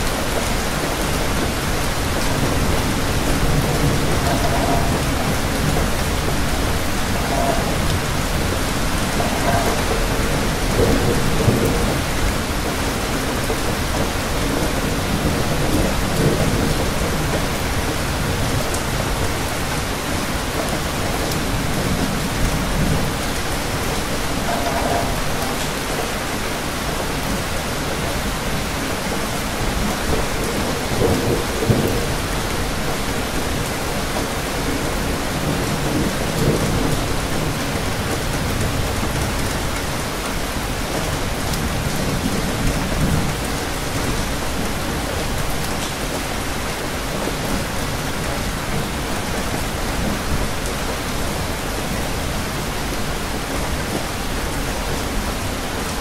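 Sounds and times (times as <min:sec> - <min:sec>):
dense rain falling: 0:00.0 - 0:56.0.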